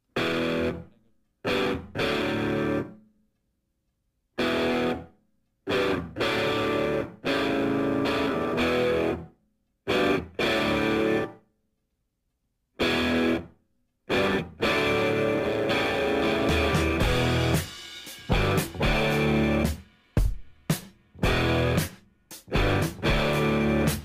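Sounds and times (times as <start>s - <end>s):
distorted electric guitar riff: 0.2s - 3.0s, 4.4s - 5.1s, 5.7s - 9.3s, 9.9s - 11.4s, 12.8s - 13.5s, 14.1s - 19.8s, 21.2s - 24.0s.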